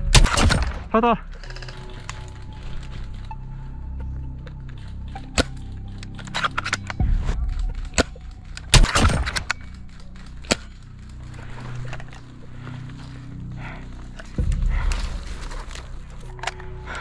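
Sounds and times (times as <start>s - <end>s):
spring rifle shot: 0.0s - 0.9s, 7.9s - 9.6s
airsoft guns firing: 8.7s - 9.5s.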